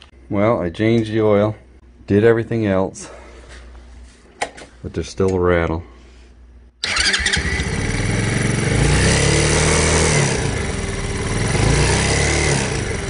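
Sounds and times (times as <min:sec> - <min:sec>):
motorcycle engine revving: 0:06.8 - 0:13.0.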